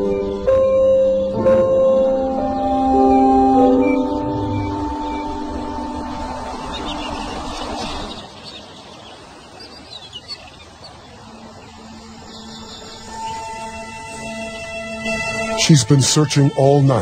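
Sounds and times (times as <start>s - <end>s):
soundtrack music: 0.0s - 8.0s
outdoor ambience: 0.0s - 17.0s.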